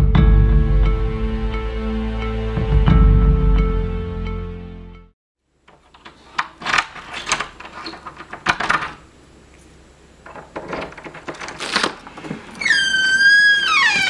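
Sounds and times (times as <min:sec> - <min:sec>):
door lock clicks and rattles: 0:05.8 - 0:09.0, 0:10.2 - 0:12.2.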